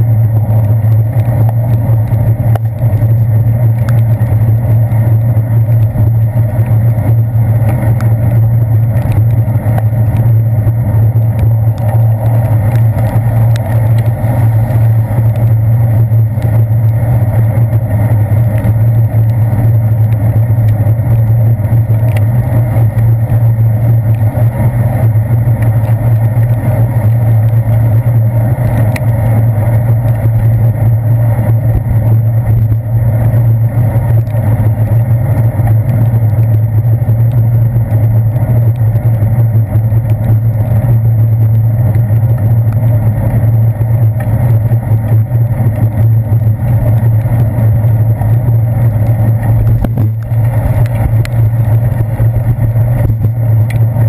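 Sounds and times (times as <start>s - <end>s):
muffled bicycle riding rumble: 0.0s - 54.0s
faint clicks: 0.8s - 4.4s, 11.3s - 14.2s, 20.0s - 22.3s, 49.0s - 53.9s.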